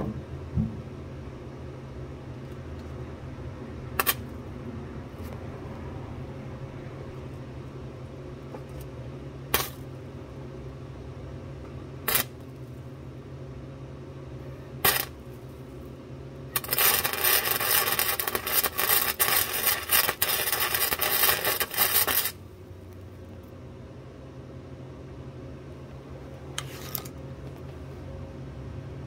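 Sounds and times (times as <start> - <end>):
steady low hum: 0.0 - 29.0
welder arcing and crackling: 4.0 - 4.5, 9.5 - 10.0, 12.0 - 12.8, 14.8 - 15.8, 16.5 - 22.4.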